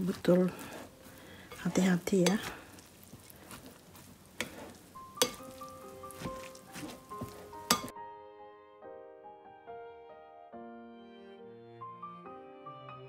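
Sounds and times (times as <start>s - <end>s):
soft background music: 0.0s - 2.3s, 4.5s - 13.0s
spoon scraping glass bowl: 4.4s - 7.9s.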